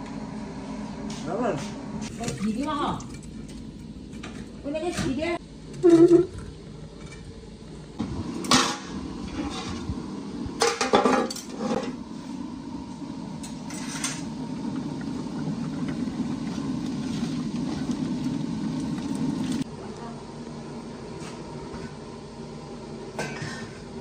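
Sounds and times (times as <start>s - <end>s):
kitchen pots and utensils clinking: 10.6s - 11.9s
pot of broth boiling: 11.5s - 19.8s.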